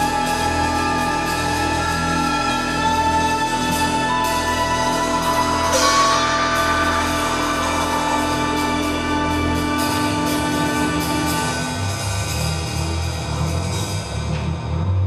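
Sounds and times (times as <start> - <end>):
orchestra playing film music: 0.0 - 12.1
light percussion strokes: 0.0 - 14.5.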